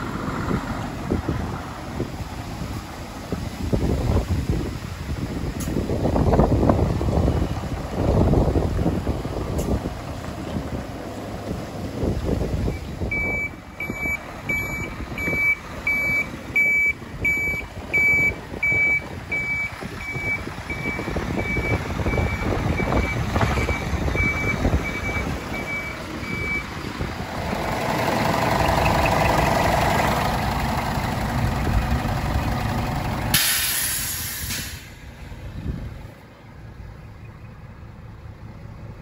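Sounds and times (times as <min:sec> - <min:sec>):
diesel truck engine running: 0:00.0 - 0:39.0
reversing alarm beeping: 0:12.7 - 0:26.7
burst of air hiss: 0:33.4 - 0:35.0.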